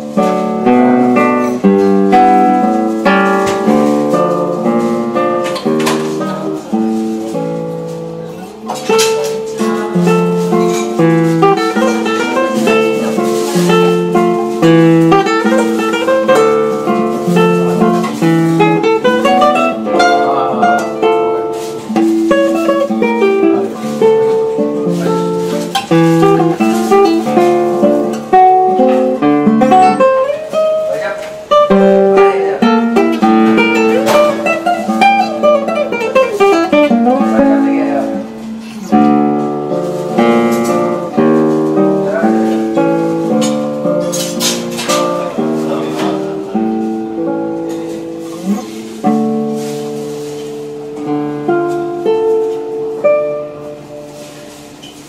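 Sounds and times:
solo classical guitar: 0.0 - 55.0.

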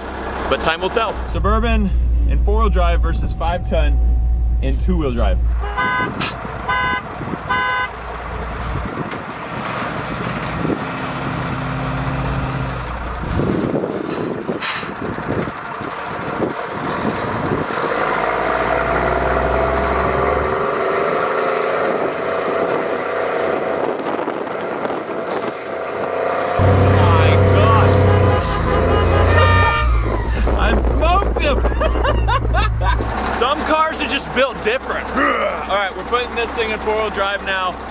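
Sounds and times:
diesel engines running hard: 0.0 - 37.9
high whine: 1.1 - 6.2, 26.4 - 33.1.

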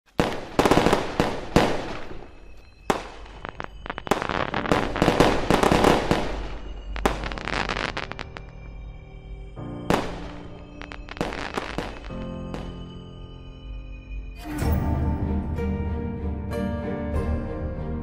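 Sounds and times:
fireworks bursting and crackling: 0.1 - 8.9, 9.6 - 13.1.

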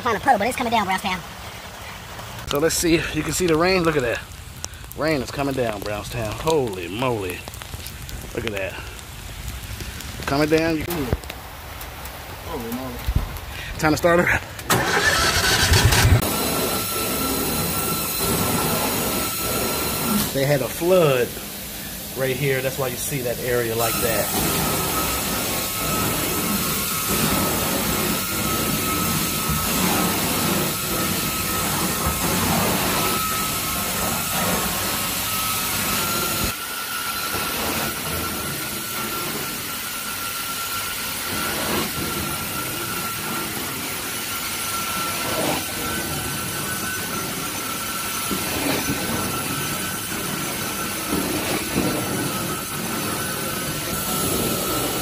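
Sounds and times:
carpet extraction wand whining: 14.6 - 55.0.

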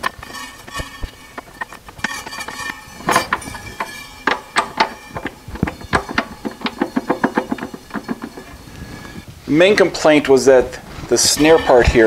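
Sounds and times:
cajon snare wires rattling: 0.0 - 9.3.

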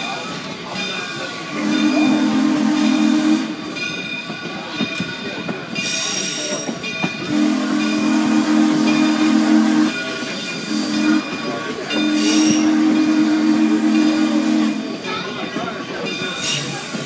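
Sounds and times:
train noise: 0.0 - 17.0
locomotive horn blast: 1.5 - 3.8, 7.3 - 10.0, 10.6 - 11.4, 12.0 - 15.0.

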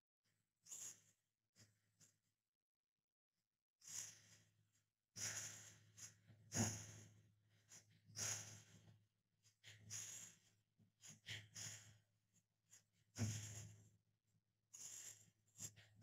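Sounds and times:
breath puffs through a straw: 0.6 - 1.7, 3.8 - 4.5, 5.2 - 12.1, 12.7 - 13.9, 14.7 - 16.0.

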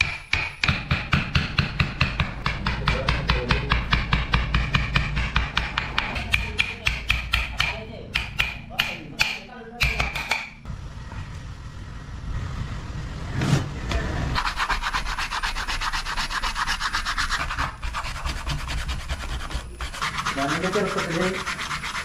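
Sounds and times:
blade scraping wood: 14.4 - 22.0.

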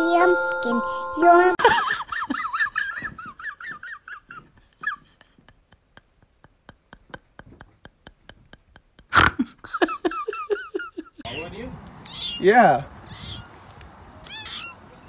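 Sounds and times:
kitten mewing: 12.1 - 12.5, 13.1 - 13.5, 14.2 - 14.8.

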